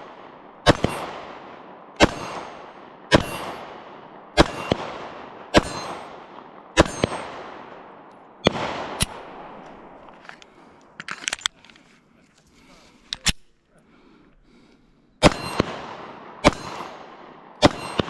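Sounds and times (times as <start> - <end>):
pistol shots with echo: 0.0 - 10.1, 15.2 - 18.0.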